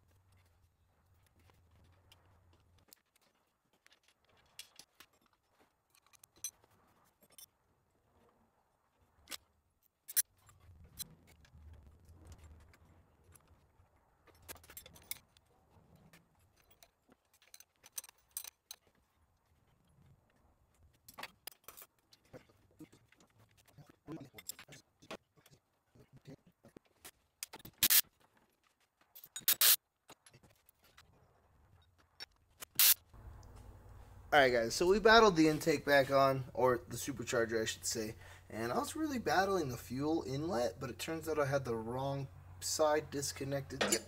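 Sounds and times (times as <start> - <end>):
metal hand tools clinking: 43.7 - 44.0.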